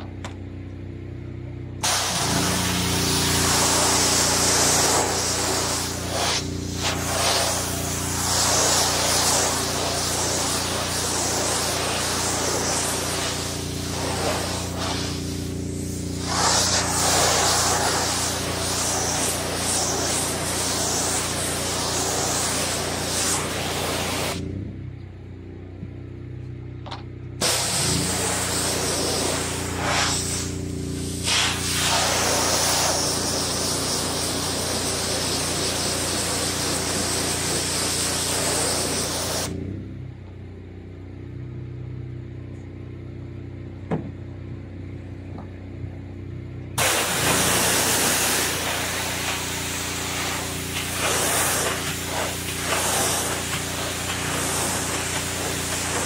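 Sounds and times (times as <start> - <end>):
steady low hum: 0.2 - 32.9
water spraying hiss: 1.8 - 24.4, 27.4 - 39.5, 46.8 - 56.0.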